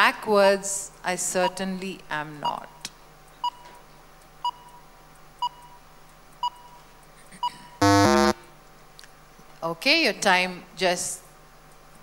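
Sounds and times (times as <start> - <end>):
countdown timer beeps: 7.8 - 8.4
two-part electronic buzzer: 7.8 - 8.5.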